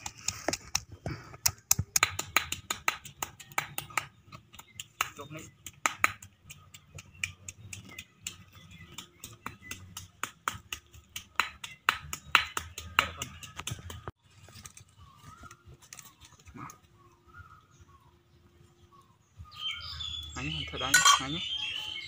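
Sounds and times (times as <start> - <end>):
pestle pounding in a mortar: 1.4 - 14.1
faint birds chirping: 2.6 - 22.0.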